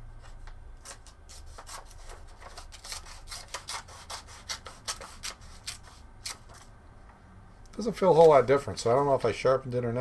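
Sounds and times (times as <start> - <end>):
plastic scissors snipping paper: 0.8 - 6.7.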